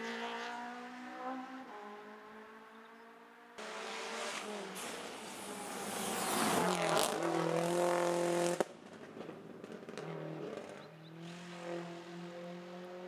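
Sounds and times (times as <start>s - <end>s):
distant rally car approaching: 0.0s - 13.0s
rally car engine revving hard: 3.6s - 8.7s, 10.2s - 13.0s.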